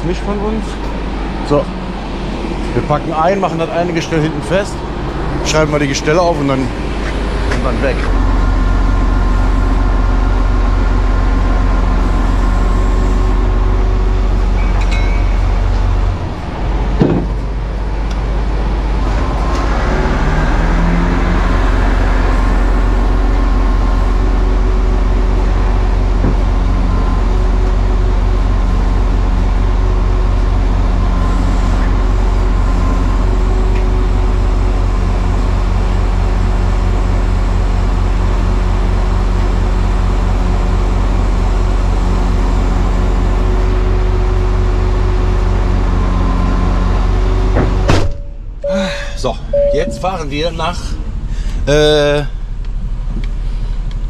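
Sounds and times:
short rising whine: 0.0s - 28.4s, 48.1s - 52.5s
diesel engine running: 0.0s - 54.0s
sharp clunk: 17.0s - 17.4s, 47.6s - 48.4s.

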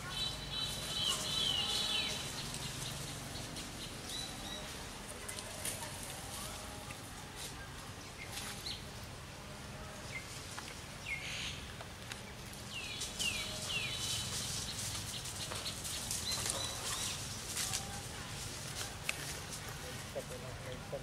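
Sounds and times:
dry leaves rustling: 0.0s - 8.8s, 10.1s - 21.0s
outdoor background noise: 0.0s - 21.0s.

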